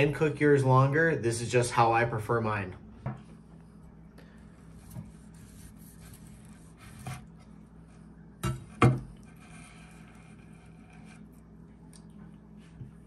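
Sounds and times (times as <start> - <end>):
knife slicing steak: 4.7 - 7.3.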